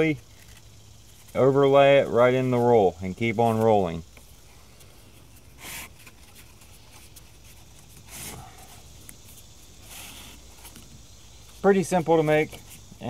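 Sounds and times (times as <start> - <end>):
cardboard scraping rustles: 4.8 - 12.8.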